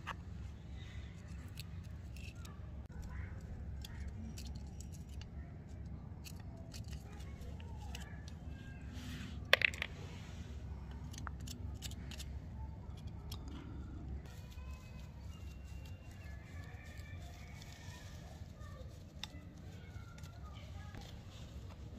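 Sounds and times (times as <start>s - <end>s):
metal tools clicking and scraping: 1.1s - 8.5s, 10.7s - 14.1s.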